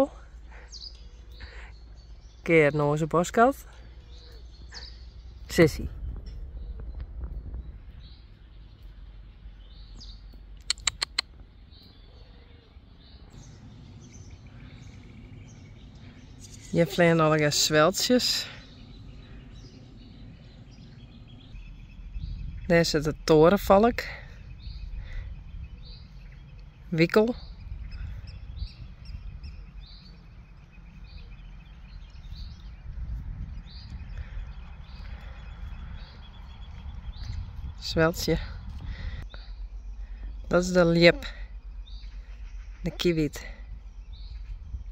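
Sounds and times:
distant bird chirps: 0.0 - 44.9
sharp clicks: 10.6 - 11.4
low steady rumble: 12.7 - 44.9.

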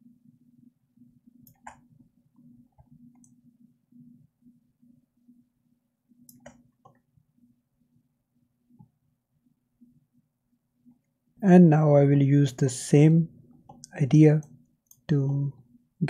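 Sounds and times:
computer mouse clicks: 1.4 - 1.9, 2.7 - 3.4, 6.2 - 7.1.

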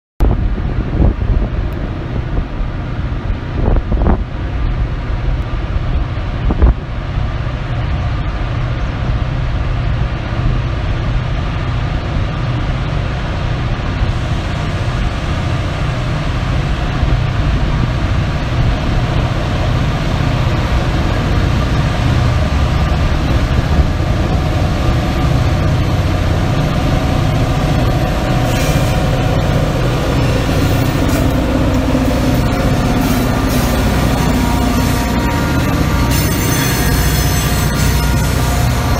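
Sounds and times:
diesel locomotive engine rumble: 0.2 - 38.9
wind buffeting microphone: 0.2 - 38.9.

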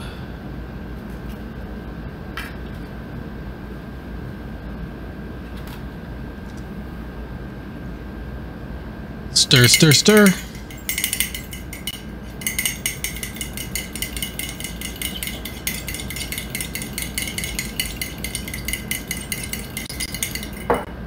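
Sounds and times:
utensil clinking in a ceramic mug: 9.4 - 20.9.

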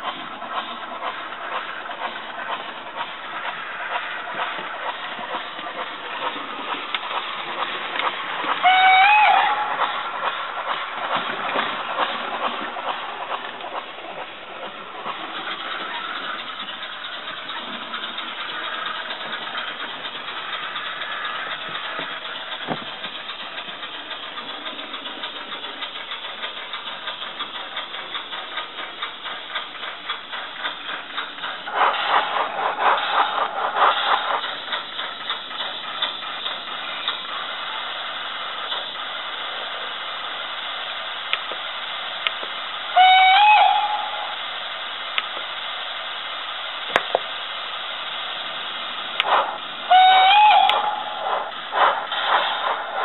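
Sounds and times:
steam engine exhaust chuffs: 0.0 - 53.0
loud locomotive whistle: 8.6 - 9.8, 42.9 - 44.4, 49.9 - 51.2.

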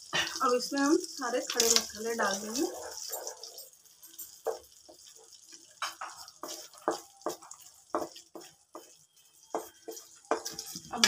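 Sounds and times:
spices sizzling in butter: 0.0 - 11.0
wooden spatula scraping pan: 5.8 - 11.0.

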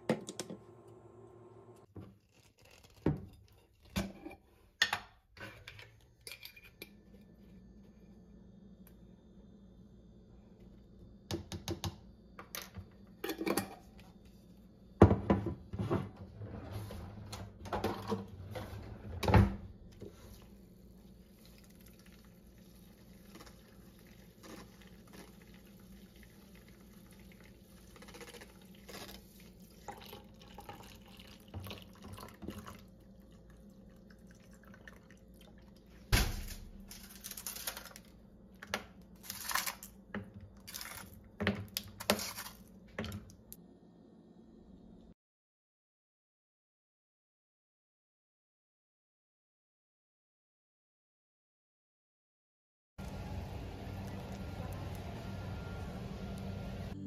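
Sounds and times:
milk frother whirring: 53.0 - 57.0.

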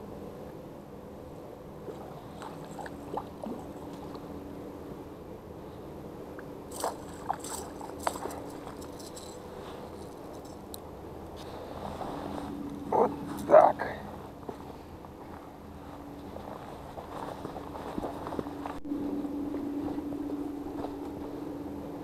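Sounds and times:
steady low hum: 0.0 - 22.0
fish splashing in water: 1.9 - 4.2, 6.7 - 8.8.

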